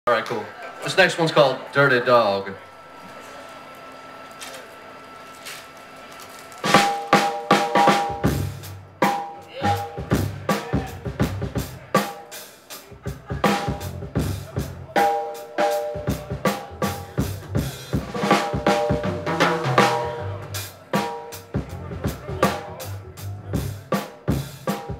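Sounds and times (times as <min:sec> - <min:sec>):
held keyboard chords: 0:02.6 - 0:24.9
drum kit: 0:06.6 - 0:24.9
walking upright bass: 0:07.8 - 0:12.0, 0:12.9 - 0:15.2, 0:16.0 - 0:20.7, 0:21.5 - 0:24.9.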